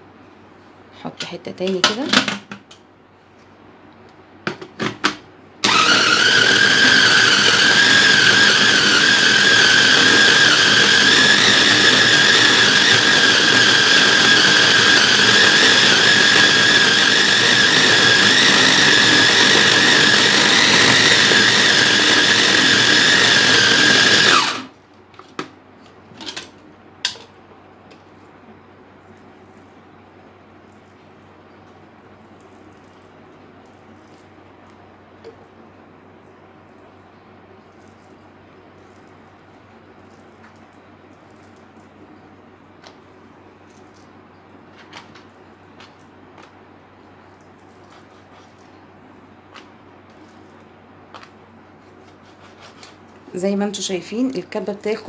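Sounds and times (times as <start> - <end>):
food chopper motor whining: 5.6 - 24.7.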